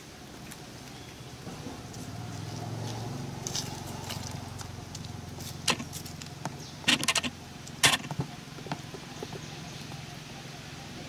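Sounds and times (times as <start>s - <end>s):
vehicle engine humming: 0.0s - 11.0s
sharp clicks and crackles: 4.6s - 8.8s.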